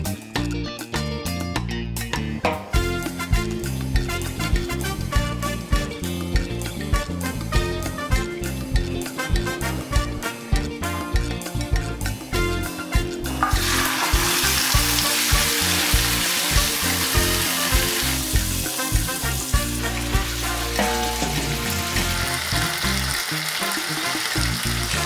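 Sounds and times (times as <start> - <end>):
background music with bass line: 0.0 - 25.0
chicken sizzling in hot oil: 13.4 - 25.0.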